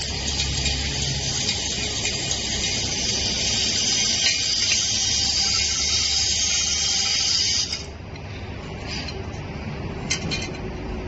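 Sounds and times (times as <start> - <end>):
workshop machinery hissing: 0.0 - 9.2.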